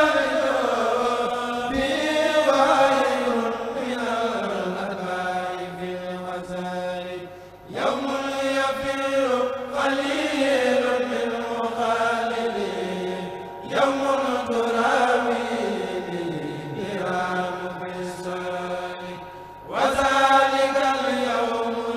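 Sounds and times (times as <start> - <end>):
men chanting together: 0.0 - 21.9.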